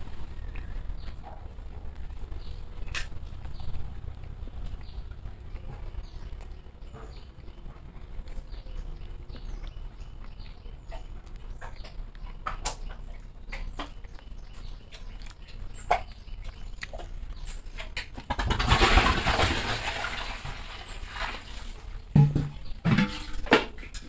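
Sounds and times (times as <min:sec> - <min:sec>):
wet chewing and lip-smacking: 0:00.0 - 0:18.4.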